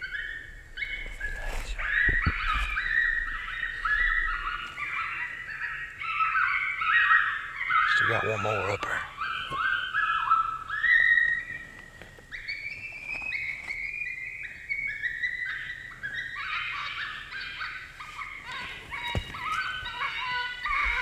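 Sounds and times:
electronic coyote distress yelps: 0.0 - 11.4, 15.0 - 21.0.

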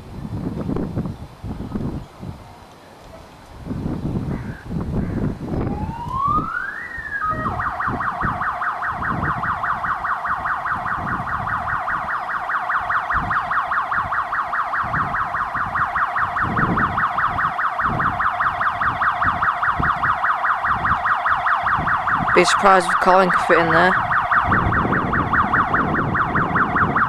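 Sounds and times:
toy fire engine electronic siren: 5.6 - 27.0.

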